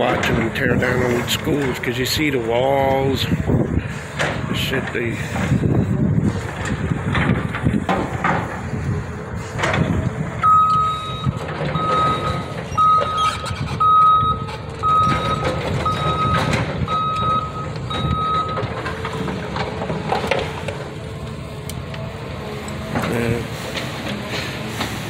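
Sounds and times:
low machine rumble: 0.0 - 25.0
backup alarm beeps: 10.4 - 18.7.

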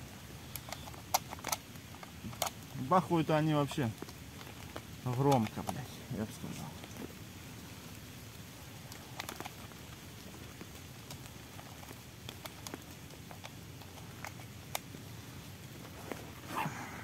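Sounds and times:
faint background hiss: 0.0 - 17.0
shotgun handling clicks: 0.4 - 2.7, 4.0 - 5.8.

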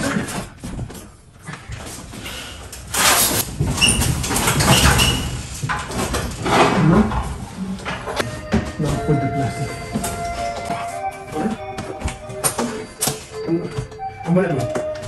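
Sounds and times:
refrigerator scraping and rubbing: 0.0 - 11.3.

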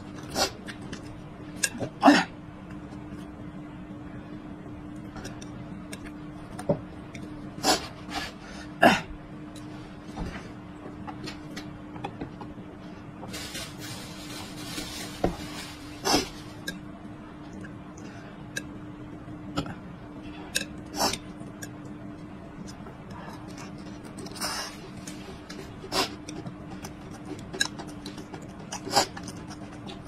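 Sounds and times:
steady low hum: 0.0 - 30.0
chewing: 26.1 - 30.0.

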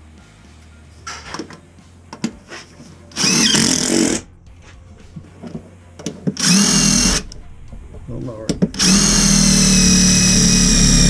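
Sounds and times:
cordless drill driving screws: 3.2 - 4.2, 6.4 - 7.2, 8.8 - 11.0.

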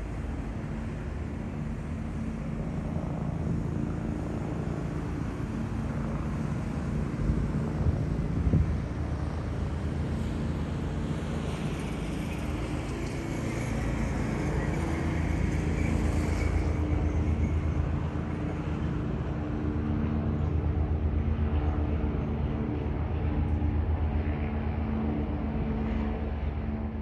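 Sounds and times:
engine running with low throb: 0.0 - 27.0.

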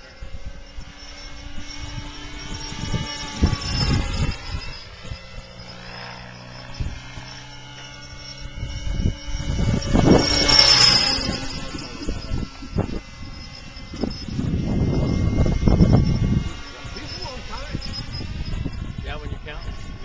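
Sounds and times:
model helicopter motor whine: 0.0 - 20.0.

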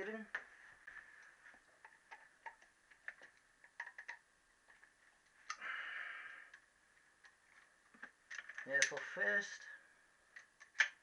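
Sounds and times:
hands clicking on wiring connectors: 1.2 - 5.6, 6.5 - 9.1, 10.3 - 11.0.

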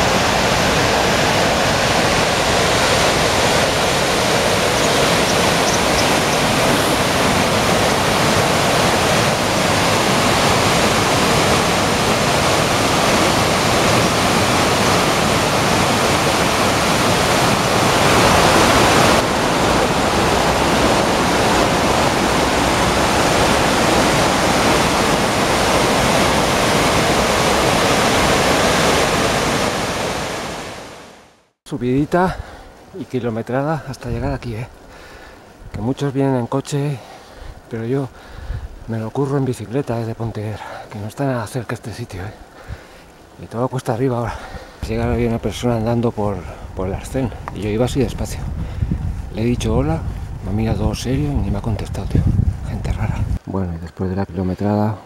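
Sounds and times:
river water rushing: 0.0 - 31.5.

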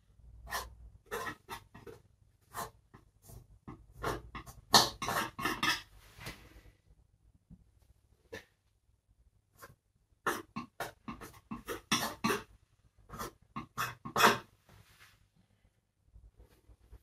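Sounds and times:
palette knife scraping canvas: 13.1 - 14.5.

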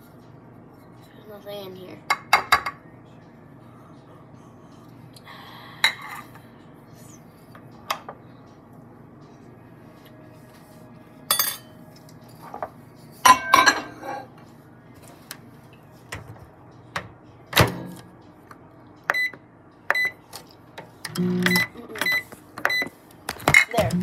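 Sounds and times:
microwave keypad beeps: 19.1 - 20.2, 21.1 - 22.9.

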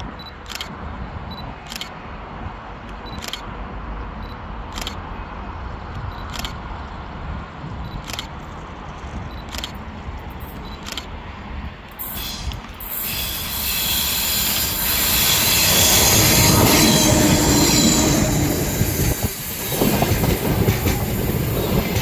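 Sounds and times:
sharp high clicks: 0.2 - 2.0, 2.8 - 3.5, 4.2 - 5.1, 5.9 - 6.6, 7.9 - 11.2
steady low rumble: 14.8 - 22.0.

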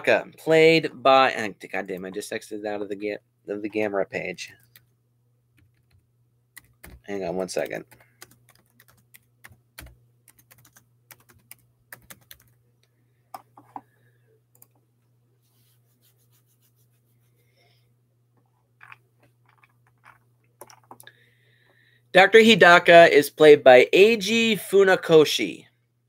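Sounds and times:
low steady hum: 0.0 - 26.0
computer keyboard typing: 6.6 - 12.6, 18.8 - 21.1.

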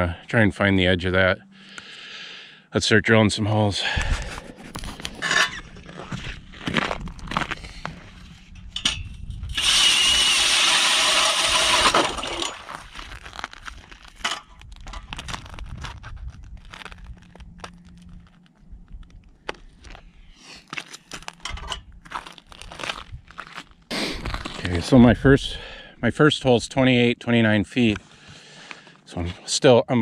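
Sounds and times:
ice auger grinding: 4.1 - 14.5.

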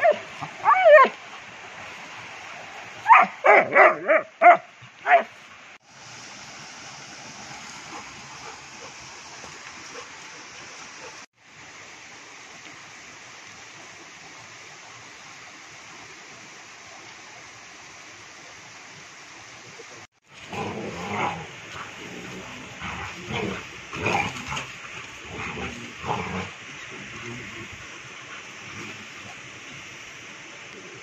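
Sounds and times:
shallow river stream rushing: 0.0 - 31.0
dogs growling: 20.4 - 27.7.

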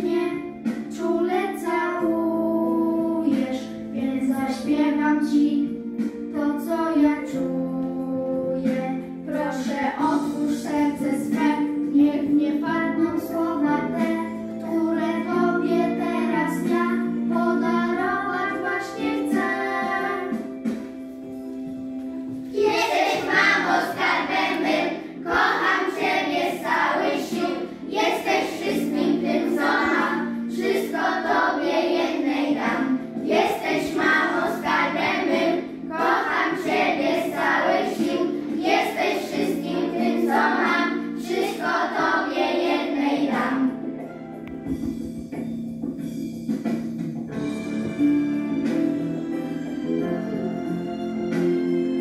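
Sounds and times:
instrumental accompaniment: 0.0 - 52.0
children singing: 8.1 - 20.5, 22.5 - 43.8.

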